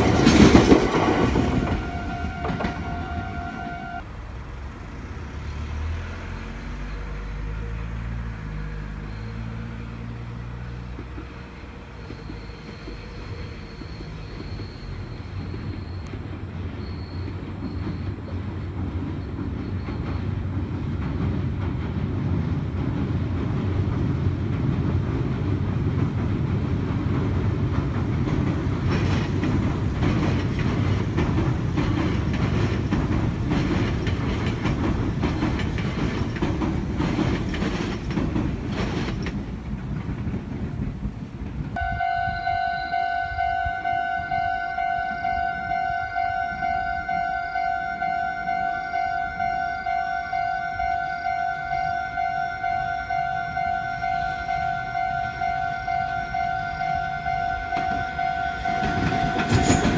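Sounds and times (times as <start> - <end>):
wheels clickety-clack: 0.0 - 4.0, 6.7 - 41.8, 45.8 - 59.9
train rumble on bridge: 0.0 - 59.9
electronic signal tones: 41.8 - 59.9.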